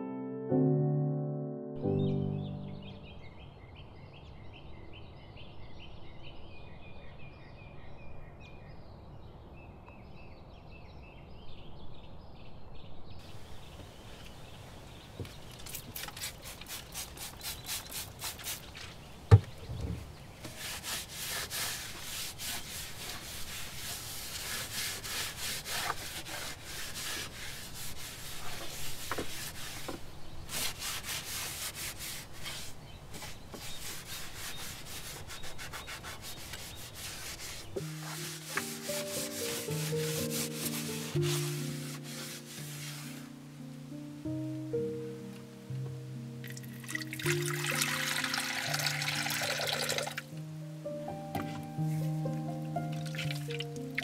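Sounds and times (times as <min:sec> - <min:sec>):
small birds chirping: 0:01.9 - 0:25.6, 0:32.2 - 0:41.7
cloth rubbing wooden countertop: 0:20.4 - 0:43.4, 0:51.4 - 0:52.4.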